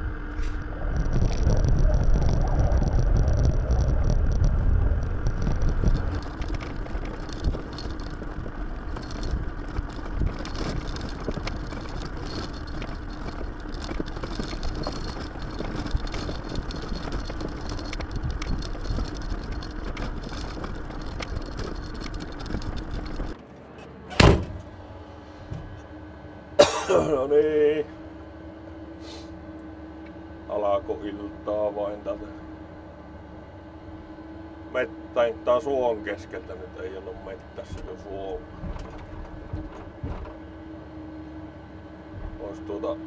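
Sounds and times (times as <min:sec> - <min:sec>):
truck engine hum: 0:00.0 - 0:43.0
rattling and clatter: 0:00.5 - 0:23.4, 0:37.4 - 0:40.7.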